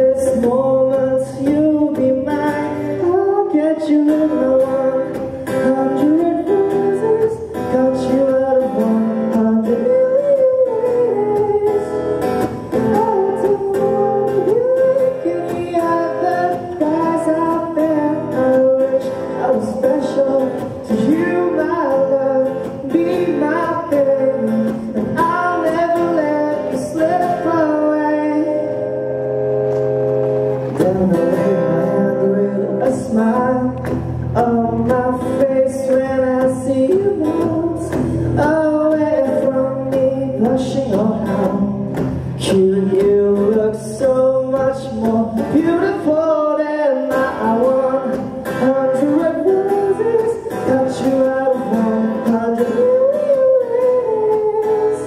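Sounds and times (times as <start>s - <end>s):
man singing into a microphone: 0.0s - 29.2s, 30.7s - 55.0s
acoustic guitar: 0.0s - 55.0s.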